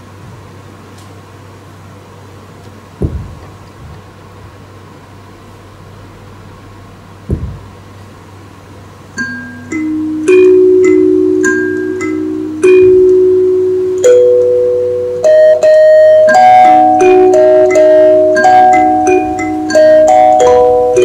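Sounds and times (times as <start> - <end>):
low steady hum: 0.0 - 21.0
dull thumps: 3.0 - 4.1, 7.2 - 7.9
chime-like mallet notes: 9.2 - 21.0.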